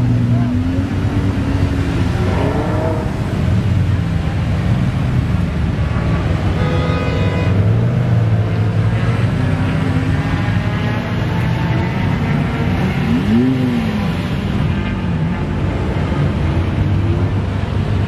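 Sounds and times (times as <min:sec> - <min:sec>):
car engine revving: 0:07.6 - 0:18.0.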